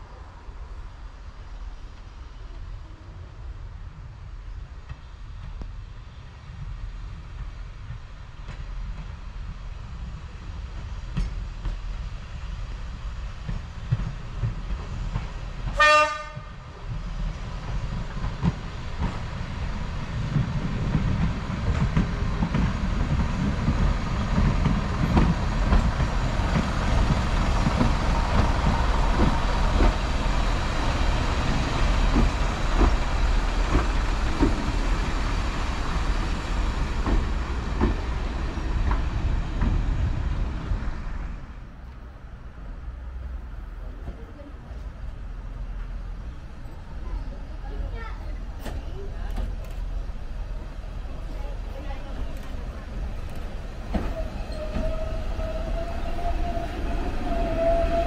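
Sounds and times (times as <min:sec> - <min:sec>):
diesel train engines rumbling: 0:00.0 - 0:58.0
train wheels ticking over rail joints: 0:13.4 - 0:40.0
train horn blast: 0:15.7 - 0:16.6.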